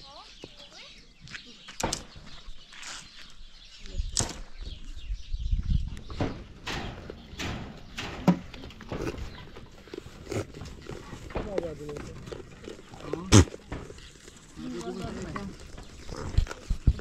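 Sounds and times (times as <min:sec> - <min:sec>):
irregular knocks and clatters: 0:06.1 - 0:10.0.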